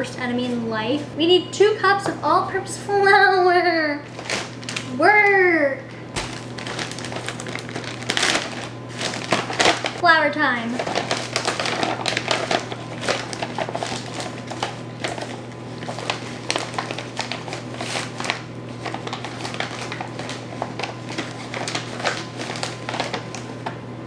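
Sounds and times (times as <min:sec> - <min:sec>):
plastic bag crinkling: 0:04.1 - 0:05.0, 0:06.2 - 0:23.8.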